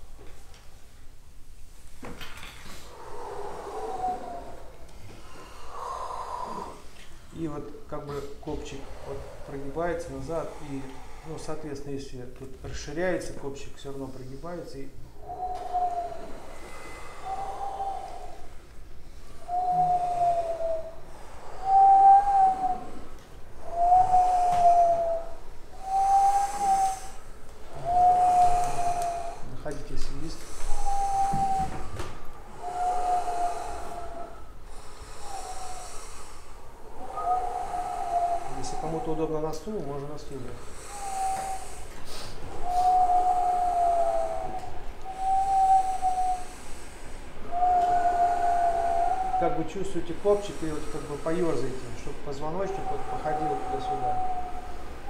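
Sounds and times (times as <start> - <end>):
faint breathy hiss: 1.6 - 55.0
throat singing whistle-like tone: 15.2 - 18.5, 19.4 - 21.0, 21.6 - 23.0, 23.6 - 29.5, 30.5 - 36.2, 36.9 - 39.3, 40.8 - 46.8, 47.5 - 49.7, 52.3 - 55.0.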